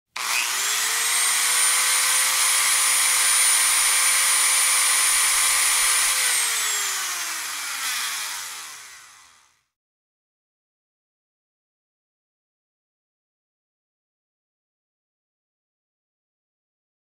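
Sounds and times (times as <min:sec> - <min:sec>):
power tool motor whine: 0:00.2 - 0:09.7.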